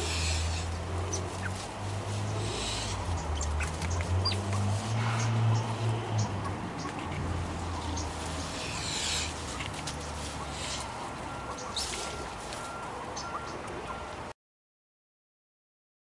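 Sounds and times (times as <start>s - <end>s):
steady low hum: 0.0s - 12.4s.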